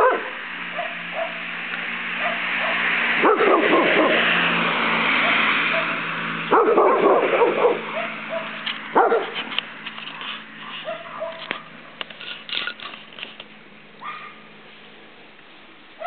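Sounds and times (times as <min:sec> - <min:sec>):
dog barking and yipping: 0:00.0 - 0:01.5, 0:02.2 - 0:04.4, 0:05.2 - 0:11.8, 0:14.0 - 0:14.5.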